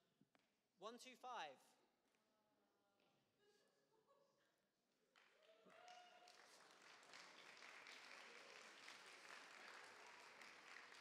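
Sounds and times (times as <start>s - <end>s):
faint audience applause: 5.2s - 11.0s.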